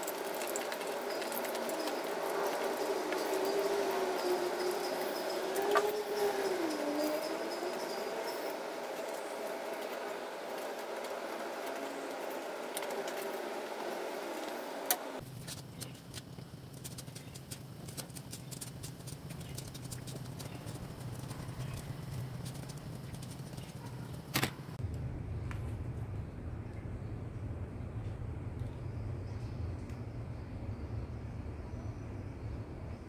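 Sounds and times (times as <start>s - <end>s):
oil sizzling in a wok: 0.0s - 15.2s.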